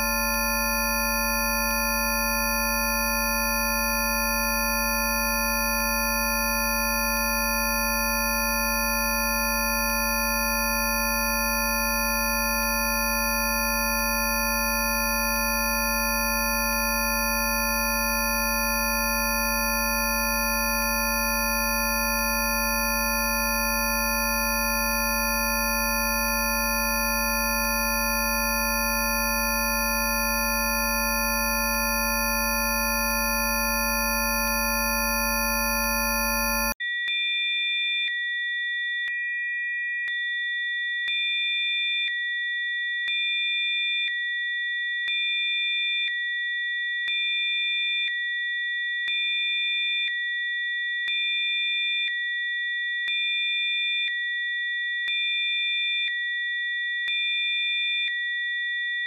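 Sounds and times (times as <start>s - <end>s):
dense chord of sine tones: 0.0s - 36.8s
pulsing high sine tones: 0.0s - 36.8s.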